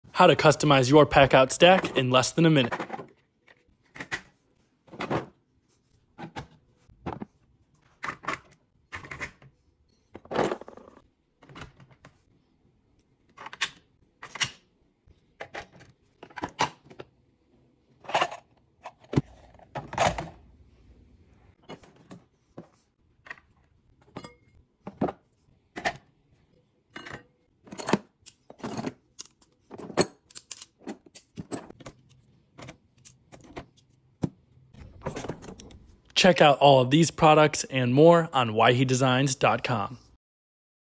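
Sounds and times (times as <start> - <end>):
plastic parts clicking and clacking: 13.2 - 14.6, 27.0 - 33.9.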